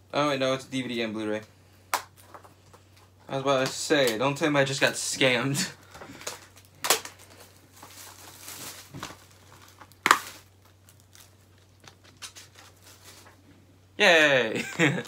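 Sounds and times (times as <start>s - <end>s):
plastic wrap crinkling: 2.0s - 13.5s.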